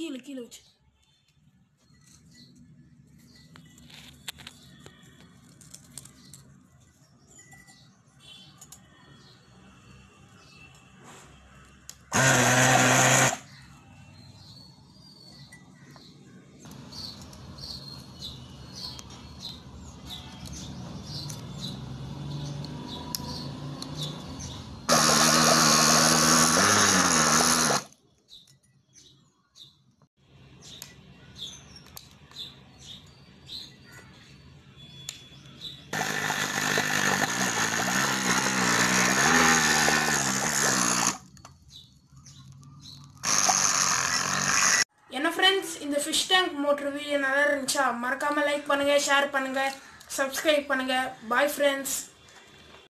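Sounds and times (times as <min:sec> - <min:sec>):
small electric pump motor humming: 0:12.1 - 0:13.4, 0:24.9 - 0:27.9, 0:36.0 - 0:41.2, 0:43.2 - 0:44.8.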